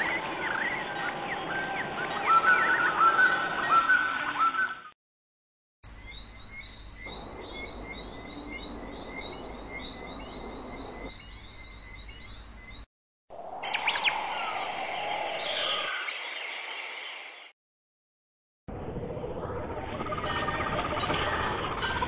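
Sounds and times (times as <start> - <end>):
small birds chirping: 5.8 - 12.9.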